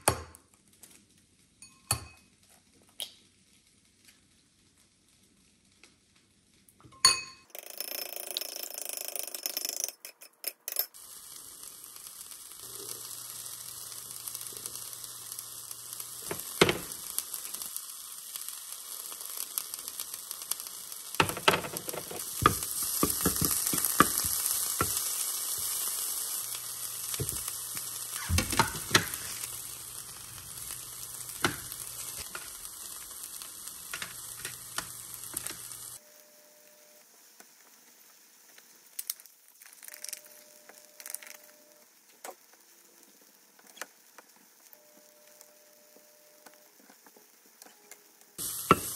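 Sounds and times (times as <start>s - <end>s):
food sizzling in frying pan: 10.8s - 48.9s.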